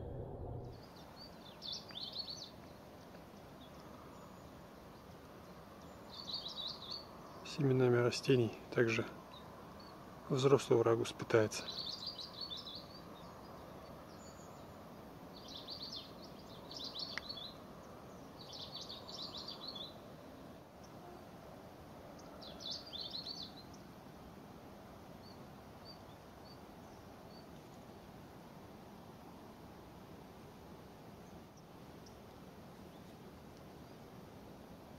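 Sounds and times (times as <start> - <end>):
steady outdoor hiss: 0.0 - 34.9
songbird trilling: 11.6 - 14.6, 22.2 - 23.8.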